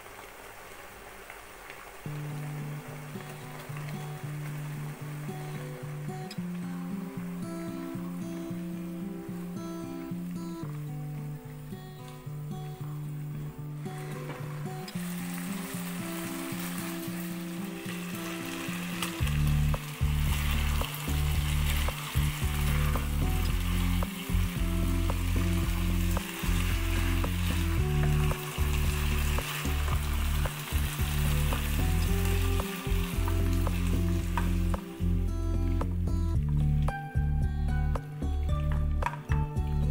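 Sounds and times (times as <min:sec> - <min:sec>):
food sizzling in a pan: 0:00.0 - 0:38.7
background music with bass: 0:18.1 - 0:39.9.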